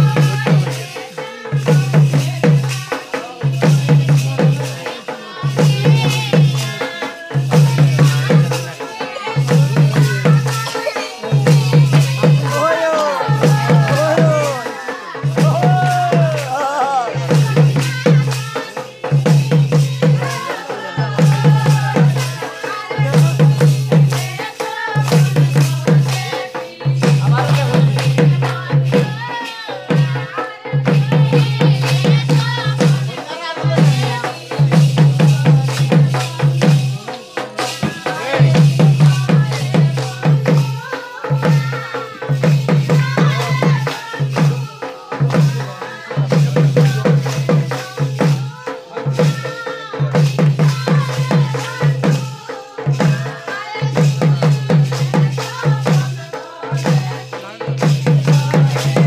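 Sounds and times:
person singing folk song: 0.0s - 59.0s
rattling shaker percussion: 0.0s - 59.0s
low drumbeat: 9.4s - 29.3s.

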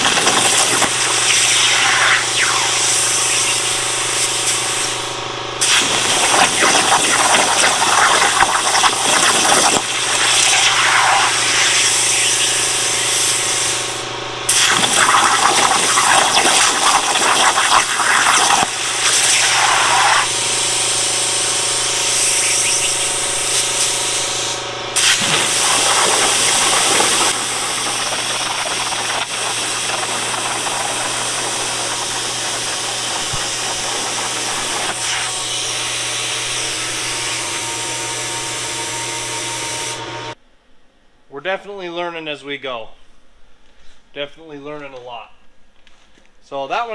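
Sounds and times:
water splashing: 0.0s - 2.4s, 5.6s - 11.9s, 25.0s - 35.4s
plasma arc hissing: 0.0s - 40.0s
constant machine hum: 0.0s - 40.4s.

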